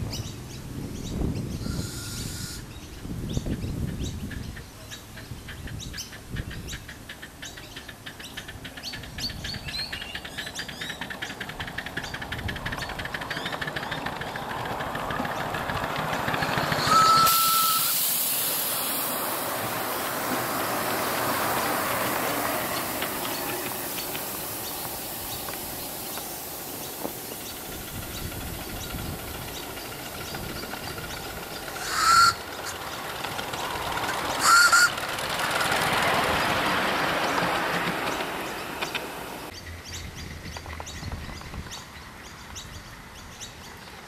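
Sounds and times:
birds chirping: 0.0 - 44.0
steam locomotive chuffing: 6.8 - 39.5
steam hissing: 13.0 - 39.5.

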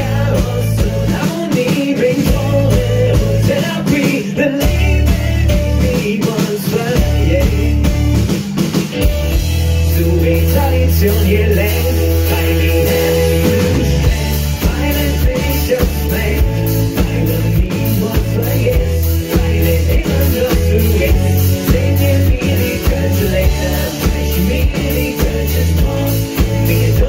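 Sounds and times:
person singing: 0.0 - 8.2, 9.8 - 27.0
live rock band playing: 0.0 - 27.0.

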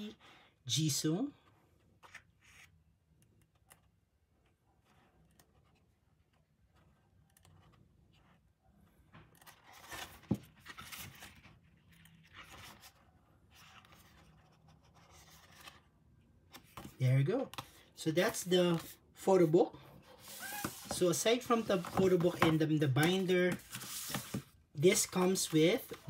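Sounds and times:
paper pages rustling: 9.2 - 15.9, 20.1 - 26.0.

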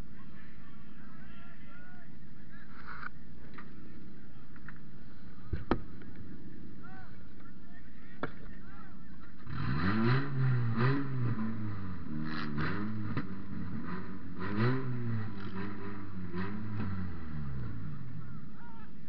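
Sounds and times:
car engine revving: 9.3 - 18.6.

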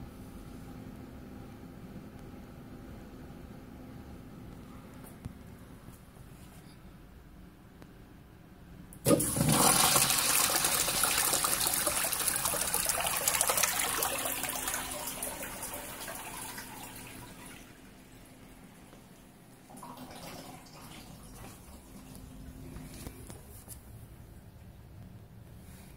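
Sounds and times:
urinal flushing water rush: 9.0 - 22.8.

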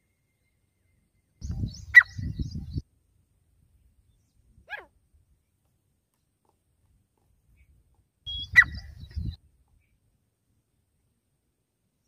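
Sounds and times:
sharp high animal call: 8.3 - 9.0.

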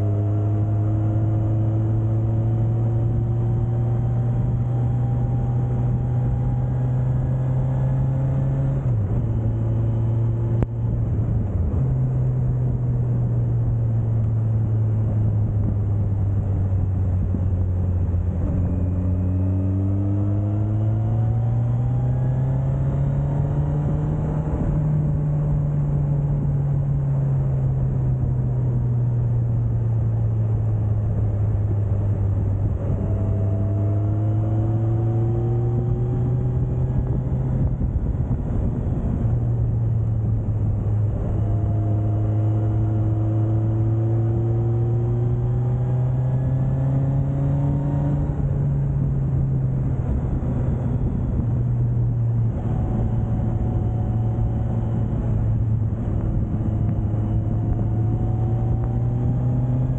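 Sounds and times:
wind and road noise: 0.0 - 59.9
motorcycle engine running: 22.3 - 59.9.

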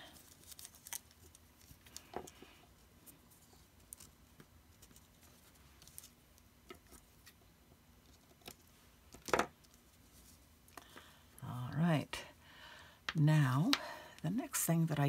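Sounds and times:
handling copper foil tape: 0.0 - 2.4.

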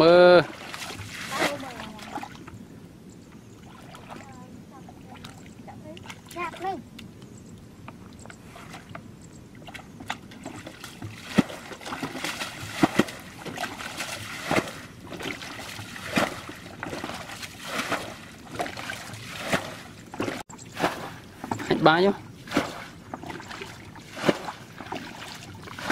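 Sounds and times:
water sloshing and splashing: 0.0 - 7.0, 7.9 - 25.9
water thrown from bucket splashing: 0.4 - 2.4, 10.7 - 21.8.

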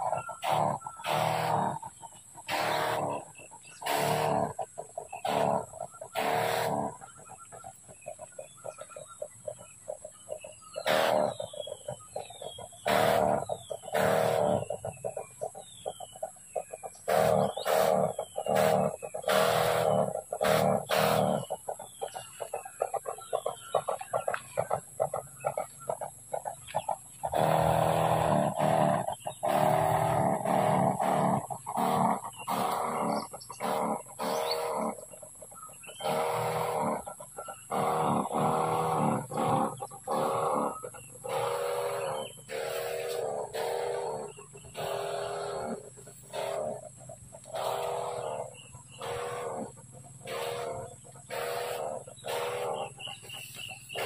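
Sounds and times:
chickens clucking: 0.0 - 54.0.

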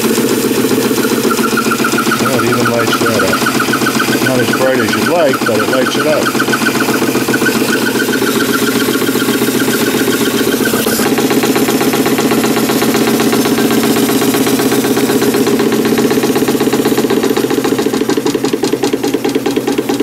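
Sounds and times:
steam engine beating: 0.0 - 20.0.

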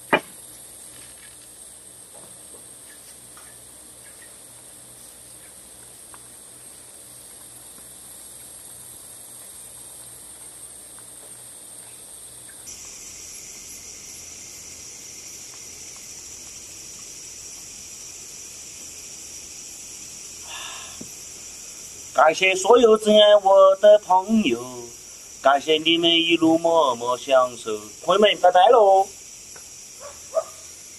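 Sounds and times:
night insects chirring: 0.0 - 30.9.

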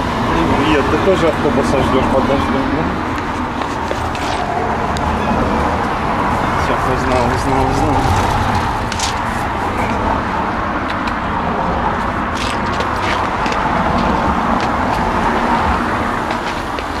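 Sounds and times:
cars passing on wet street: 0.0 - 17.0.

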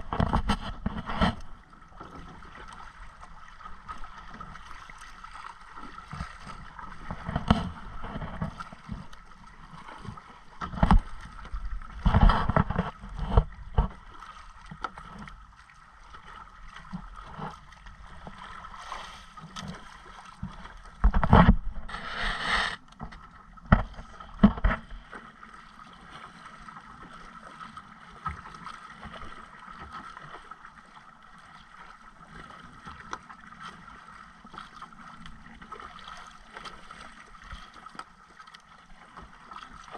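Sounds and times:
water splashing against boat hull: 0.0 - 39.9.

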